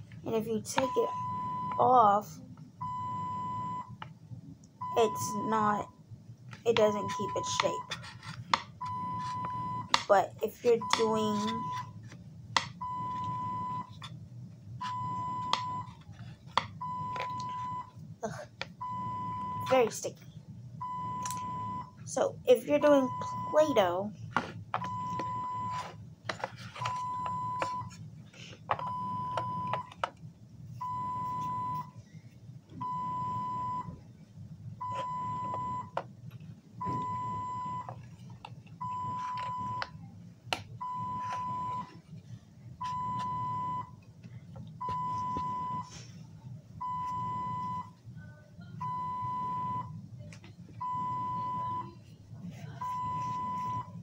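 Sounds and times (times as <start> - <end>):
low steady hum: 0.0 - 54.0
medical alarm beeping: 0.3 - 2.2, 2.8 - 4.0, 4.8 - 6.0, 6.7 - 8.0, 8.8 - 12.0, 12.8 - 14.0, 14.8 - 16.0, 16.8 - 20.1, 20.8 - 24.1, 24.8 - 26.0, 26.8 - 28.0, 28.8 - 30.0, 30.8 - 32.0, 32.8 - 34.0, 34.8 - 36.0, 36.8 - 38.0, 38.8 - 40.0, 40.8 - 42.0, 42.8 - 44.0, 44.8 - 46.0, 46.8 - 48.0, 48.8 - 50.0, 50.8 - 52.0, 52.8 - 54.0.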